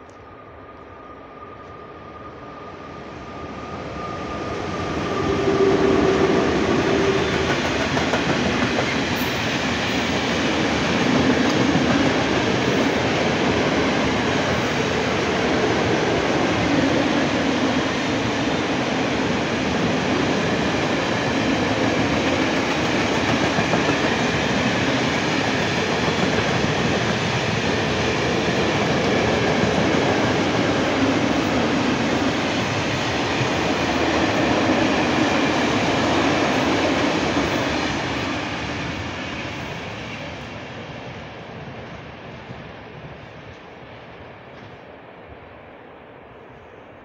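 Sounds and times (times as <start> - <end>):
train wheels clattering on rails: 5.0 - 40.3.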